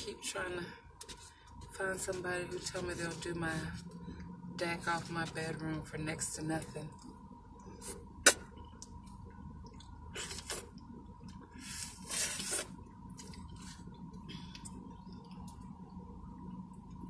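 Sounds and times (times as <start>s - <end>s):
wet smacking and slurping: 7.6s - 14.0s.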